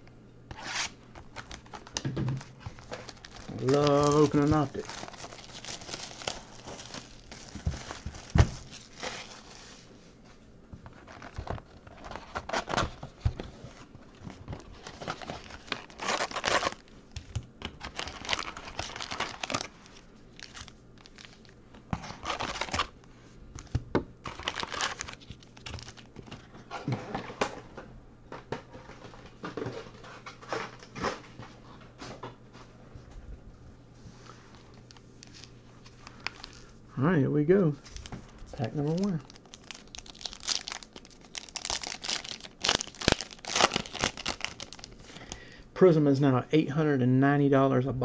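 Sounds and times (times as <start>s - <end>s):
plastic shrink-wrap tearing: 0.5s - 9.7s, 14.6s - 22.9s, 24.2s - 26.1s, 37.8s - 45.3s
foil packs crinkling: 0.5s - 9.9s, 10.9s - 23.0s, 23.6s - 27.4s, 35.2s - 36.8s, 37.6s - 45.6s.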